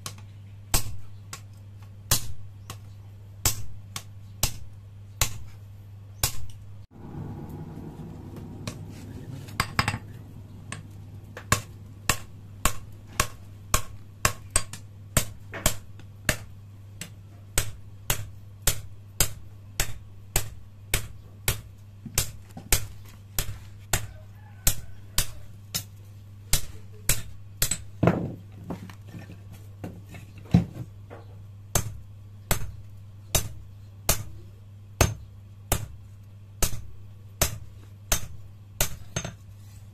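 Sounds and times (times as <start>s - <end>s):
steady low hum: 2.1s - 39.9s
hammer striking metal on anvil: 7.1s - 15.8s.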